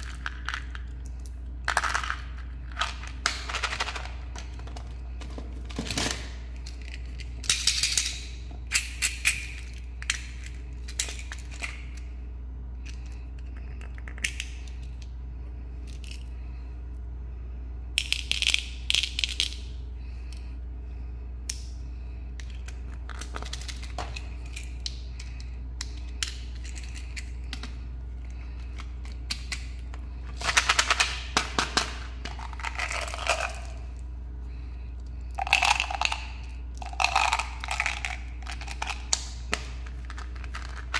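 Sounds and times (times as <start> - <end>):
plastic candy containers handled: 0.0 - 12.0, 22.4 - 33.9, 35.0 - 40.9
steady low hum: 0.0 - 40.9
candy rattling in container: 35.4 - 39.2, 40.0 - 40.9.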